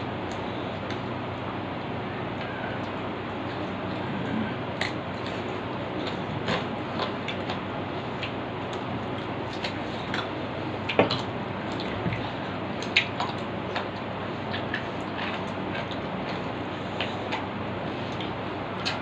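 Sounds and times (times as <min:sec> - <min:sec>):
chewing and mouth smacks: 0:04.7 - 0:19.0.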